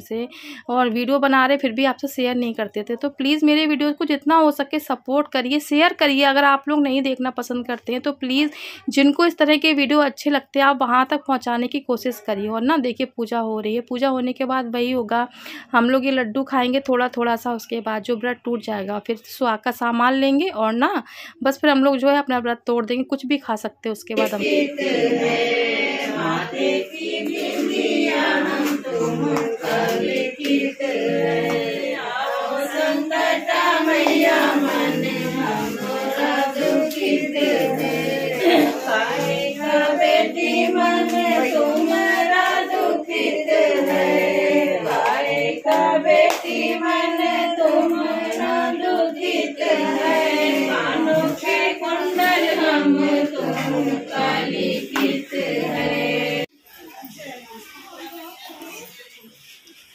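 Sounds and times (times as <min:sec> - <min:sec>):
group of women singing: 0:24.1 - 0:56.5.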